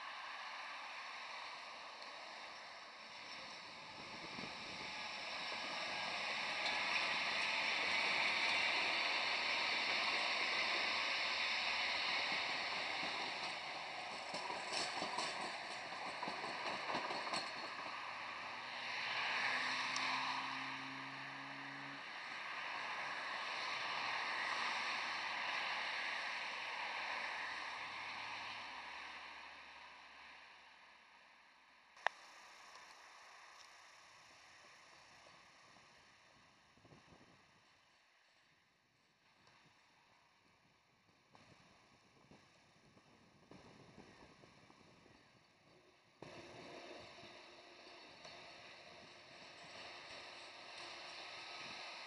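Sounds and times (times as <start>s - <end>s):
tram rolling on rails: 0.0s - 30.4s, 43.4s - 52.0s.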